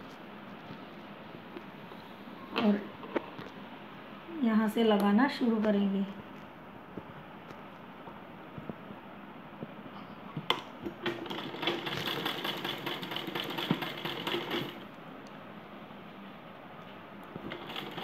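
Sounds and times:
sewing machine stitching: 0:10.9 - 0:14.8, 0:17.4 - 0:18.0.

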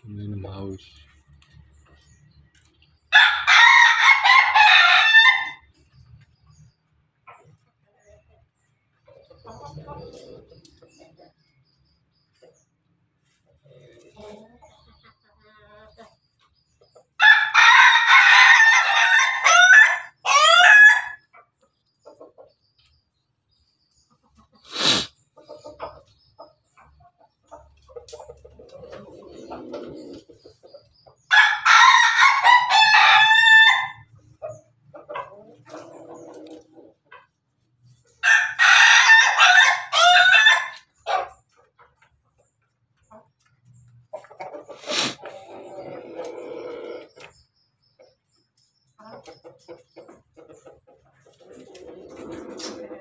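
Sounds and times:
faint chicken clucking: 0:00.0 - 0:53.0
rooster crowing: 0:03.1 - 0:05.7, 0:17.2 - 0:21.2, 0:31.3 - 0:34.1, 0:38.2 - 0:40.8.

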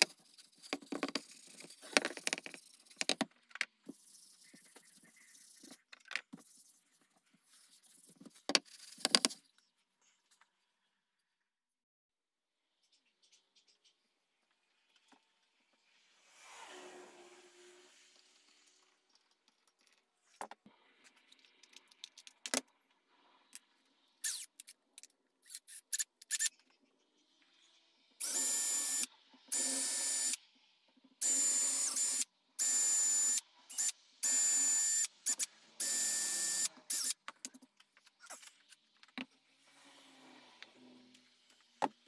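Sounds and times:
cordless drill drilling wood: 0:28.2 - 0:30.4, 0:31.2 - 0:37.2.

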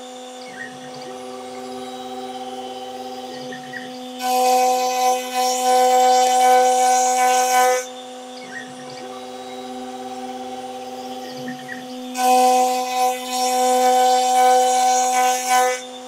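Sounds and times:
milling spindle whine: 0:00.0 - 0:16.0
cutter surfacing wood: 0:12.1 - 0:16.0.

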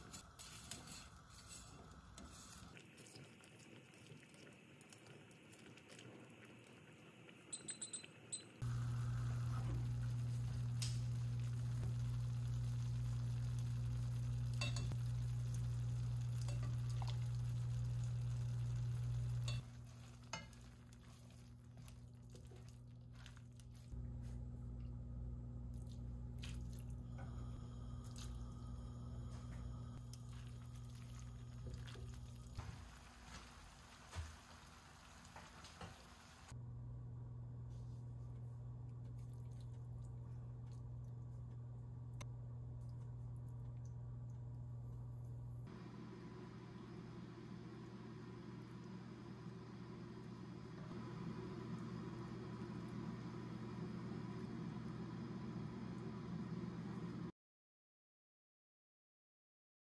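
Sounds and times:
kitchen appliance humming: 0:08.6 - 0:57.3.

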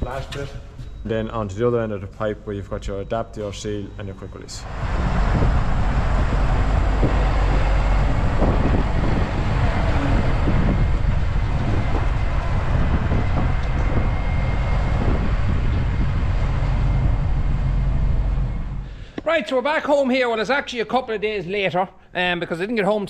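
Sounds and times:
tractor engine rumbling: 0:04.5 - 0:19.2.

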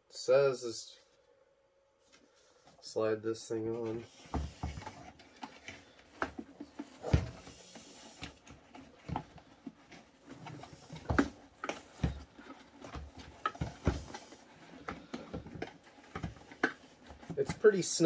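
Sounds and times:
plastic and fabric rustling: 0:03.7 - 0:18.0.

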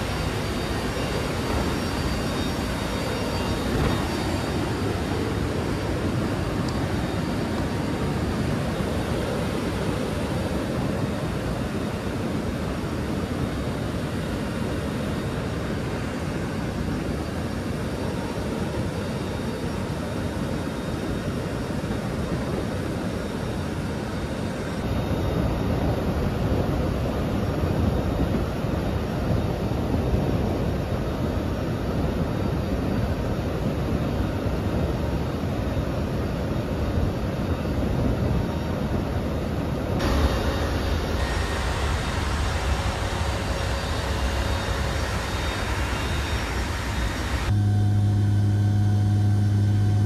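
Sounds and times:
faint steady engine tones: 0:00.0 - 0:50.0
turboprop engine noise: 0:00.0 - 0:50.0
rushing airflow: 0:40.0 - 0:47.6.

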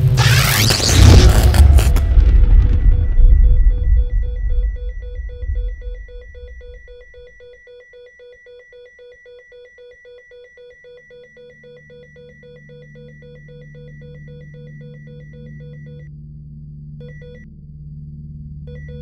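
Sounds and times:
deep rumble: 0:00.0 - 0:07.6
low hum: 0:00.0 - 0:07.6
electronic ringing tone: 0:01.1 - 0:16.1.

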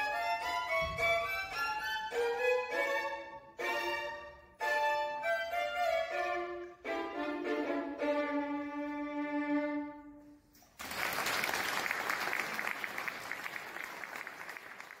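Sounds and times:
audience applauding: 0:10.8 - 0:15.0.

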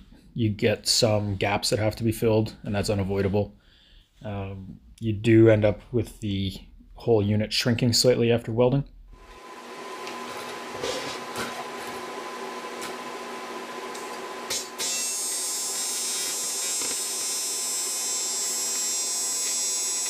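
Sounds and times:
welding arc buzzing: 0:09.2 - 0:20.0.

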